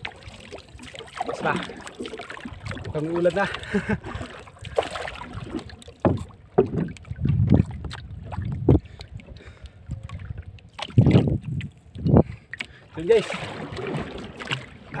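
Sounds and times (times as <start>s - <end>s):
knocks and thumps on boat: 0.0s - 15.0s
wind on microphone: 5.3s - 12.5s.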